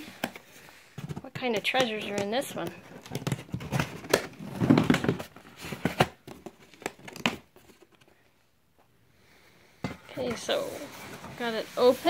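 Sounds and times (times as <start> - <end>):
box crinkling and tearing: 2.9 - 8.0.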